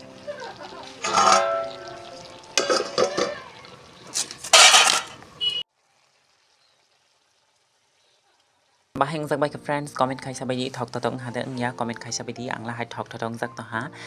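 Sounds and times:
metal spatula scraping a wok: 1.0s - 1.8s, 4.1s - 5.2s.

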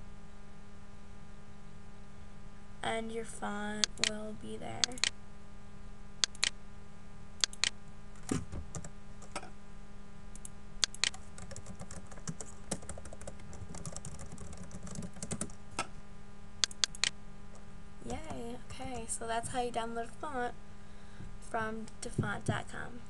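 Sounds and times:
faint steady hum: 0.0s - 23.0s
typing on computer keyboard: 7.4s - 9.4s, 10.4s - 15.6s, 16.6s - 17.1s.

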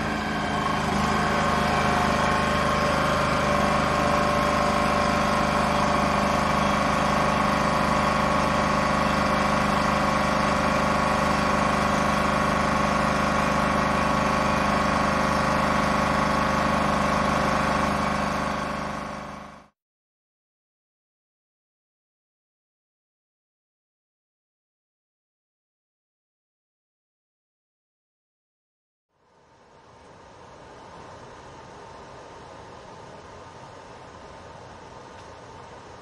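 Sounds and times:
water pump droning with whine: 0.0s - 19.7s.

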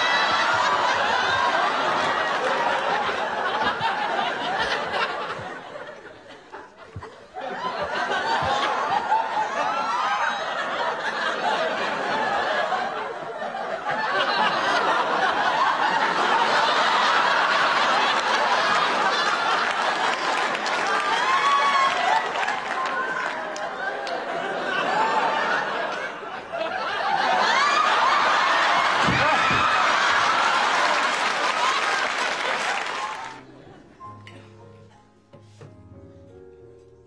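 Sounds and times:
studio audience laughing: 0.0s - 34.0s.

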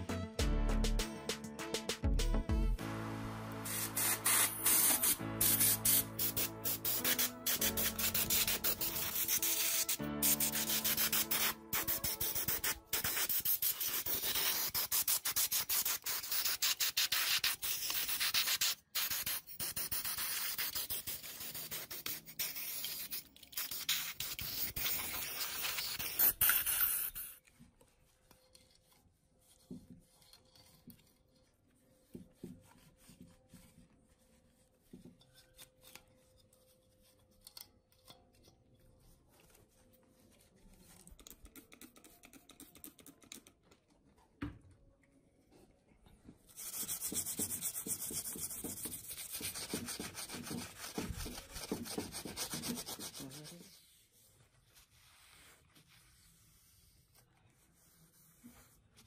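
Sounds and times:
compressed-air blow gun hissing: 3.6s - 10.5s
brush scrubbing glass: 3.6s - 26.6s.

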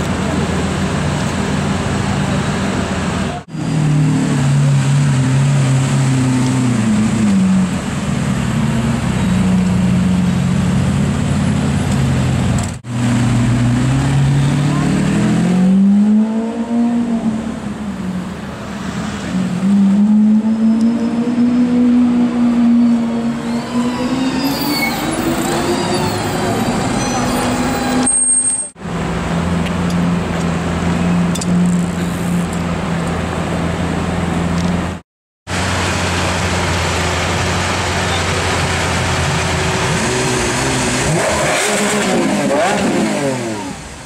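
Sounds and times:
car engine revving: 35.5s - 43.8s.

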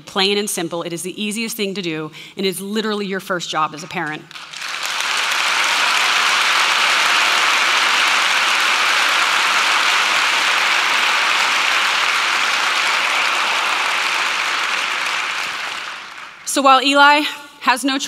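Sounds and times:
audience applauding: 4.3s - 16.6s.

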